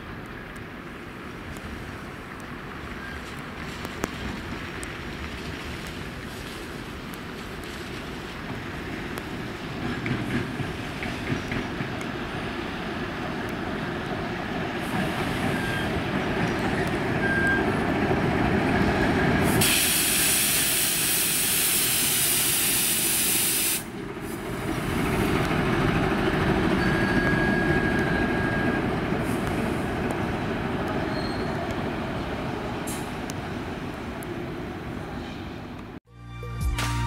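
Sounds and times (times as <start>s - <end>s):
loud hiss of air: 19.4s - 24.7s
diesel locomotive rumbling past: 23.8s - 36.0s.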